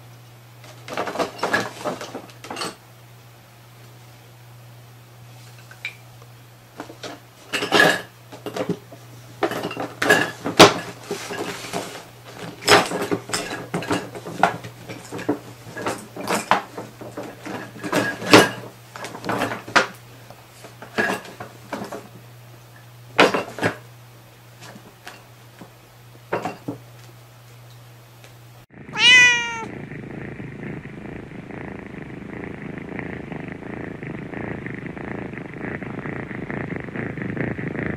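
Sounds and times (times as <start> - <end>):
cat meowing: 28.9 - 29.7
cat purring: 29.0 - 37.9.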